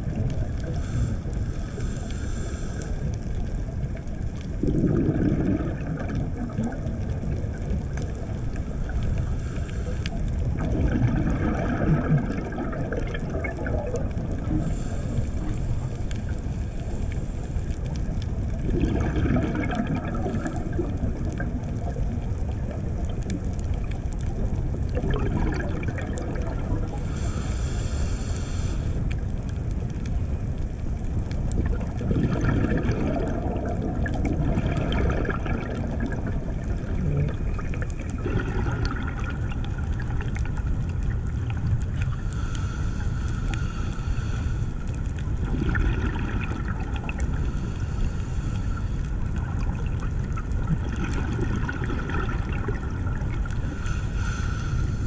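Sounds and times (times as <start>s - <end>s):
exhaled bubbles gurgling: 0.0s - 55.0s
underwater low rumble: 0.0s - 55.0s
regulator hiss: 0.6s - 3.1s, 8.7s - 10.2s, 27.0s - 29.0s, 42.0s - 44.9s, 47.3s - 49.0s, 53.6s - 55.0s.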